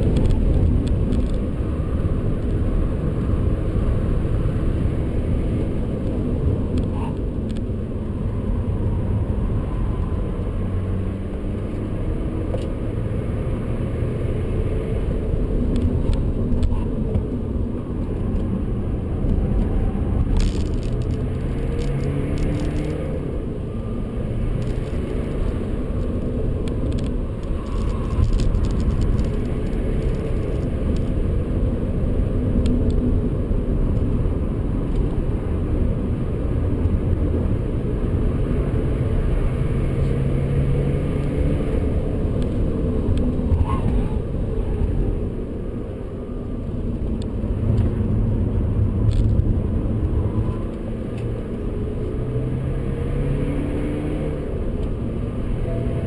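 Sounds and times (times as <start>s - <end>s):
car engine accelerating: 0.0s - 33.2s
road and tyre noise: 0.0s - 56.0s.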